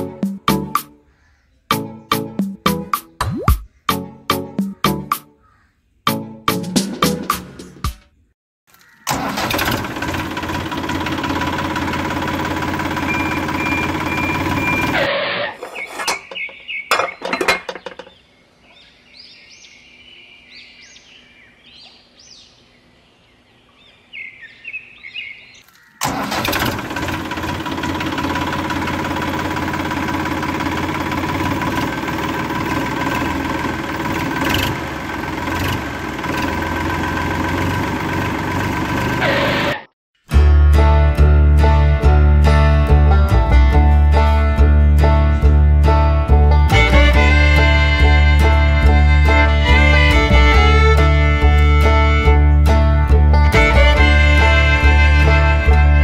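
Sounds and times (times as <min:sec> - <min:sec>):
tractor engine running: 0:09.1 - 0:18.2, 0:26.0 - 0:39.9, 0:41.5 - 0:56.0.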